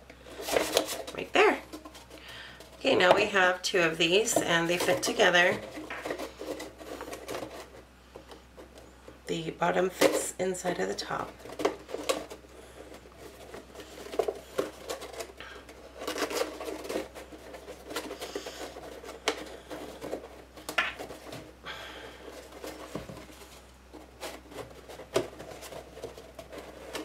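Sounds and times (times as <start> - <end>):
papery scraping and rubbing: 0.2 - 7.9, 9.8 - 27.0.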